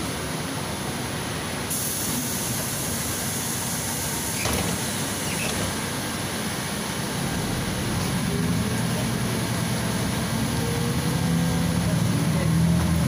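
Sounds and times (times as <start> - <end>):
bus drivetrain and road rumble: 0.0 - 13.0
hiss: 1.6 - 6.8.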